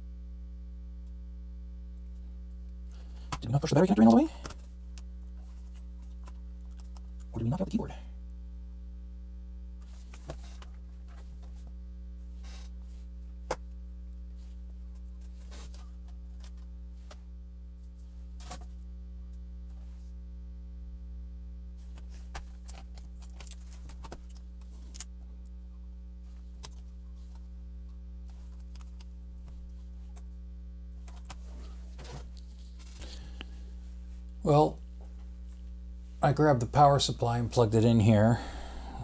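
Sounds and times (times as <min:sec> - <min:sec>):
electrical mains hum: 0:00.0 - 0:39.0.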